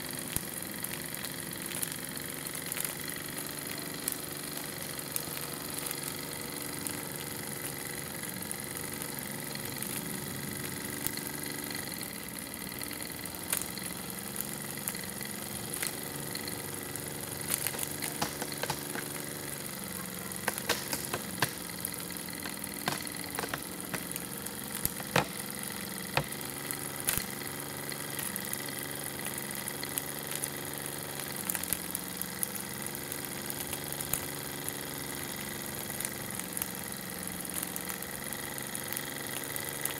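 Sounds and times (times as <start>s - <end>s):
model steam engine humming: 0.0s - 39.9s
sharp clicks: 17.4s - 27.3s.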